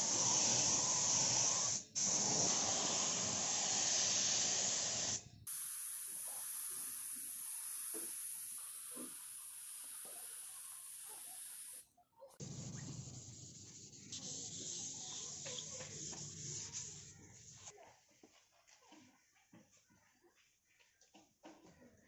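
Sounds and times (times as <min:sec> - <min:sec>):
paint spray gun hissing: 0:00.0 - 0:11.8.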